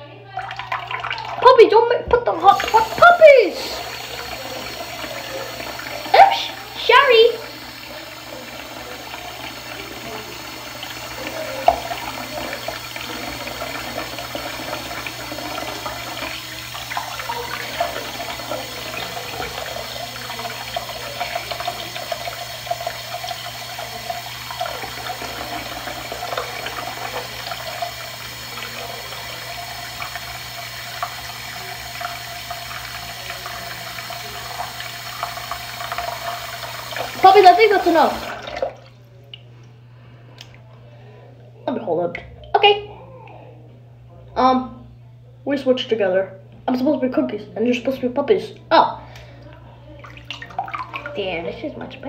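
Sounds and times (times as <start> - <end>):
faucet running into basin: 0.3 - 39.5, 49.9 - 52.0.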